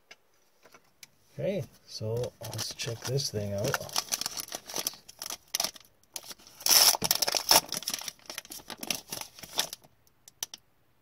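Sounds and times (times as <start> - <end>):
foil wrapper tearing and crinkling: 2.2 - 10.5.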